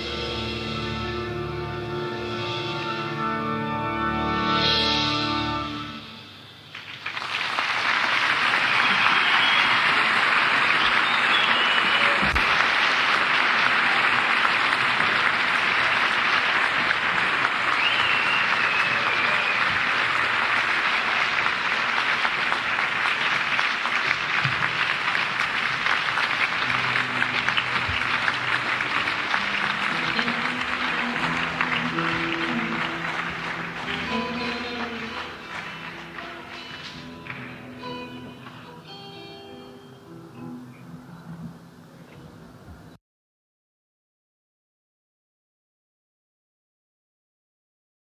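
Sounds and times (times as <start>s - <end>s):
audience applauding and cheering: 6.7s - 38.7s
high whistles: 10.7s - 12.2s, 17.7s - 19.9s.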